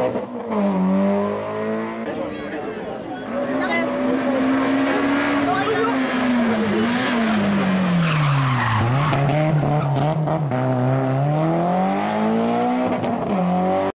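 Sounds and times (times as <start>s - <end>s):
rally car engine: 0.0s - 13.9s
tyre screech: 5.4s - 10.0s.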